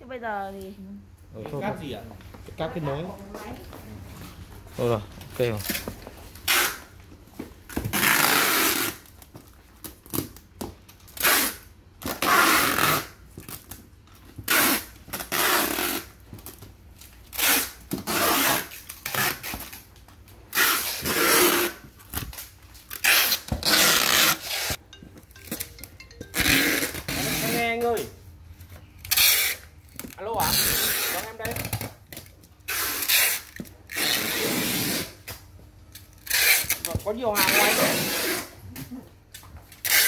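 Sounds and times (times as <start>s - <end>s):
packing tape pulled off roll: 6.4s - 6.9s, 7.7s - 24.8s, 29.0s - 40.0s.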